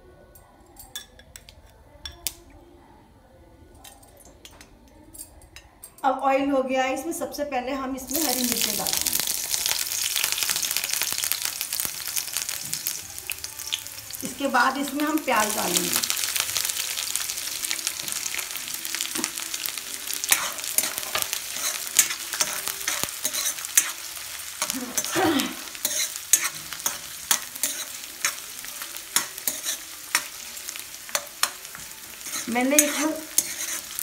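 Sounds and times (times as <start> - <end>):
onions sizzling in hot oil: 8.0 - 34.0
ladle scraping a pan: 20.2 - 24.0, 32.2 - 34.0.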